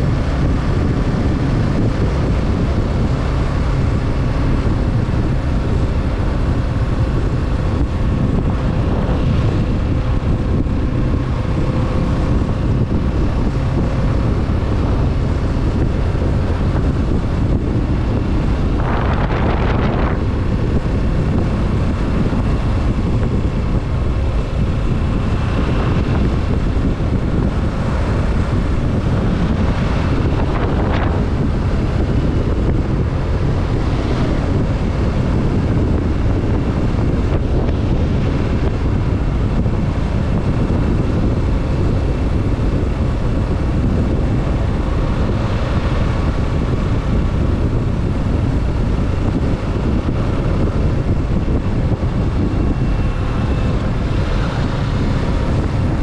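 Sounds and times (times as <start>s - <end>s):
motorcycle engine running: 0.0s - 56.0s
wind rushing over microphone: 0.0s - 56.0s.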